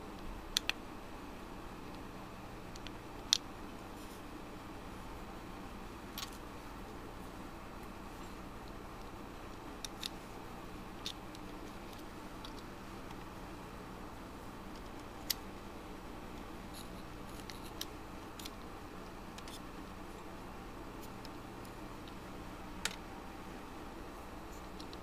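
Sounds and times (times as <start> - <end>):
steady low hum: 0.0 - 25.0
plastic parts clicking: 19.4 - 19.6.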